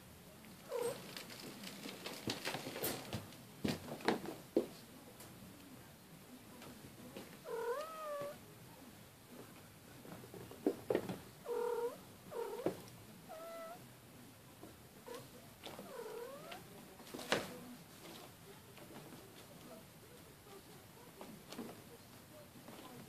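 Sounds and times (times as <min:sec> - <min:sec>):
cat meowing: 0:07.5 - 0:08.4, 0:11.5 - 0:13.8.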